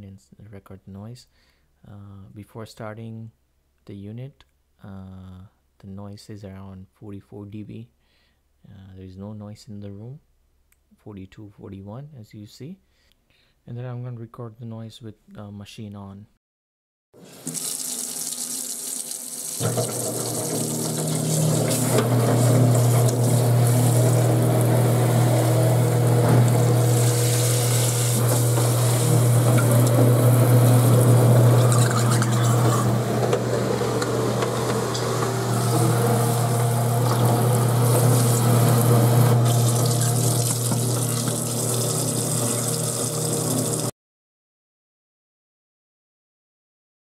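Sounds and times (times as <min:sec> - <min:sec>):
tap water hissing into drain: 0:17.2 - 0:33.4, 0:34.0 - 0:43.9
garbage disposal motor hum: 0:17.2 - 0:43.9.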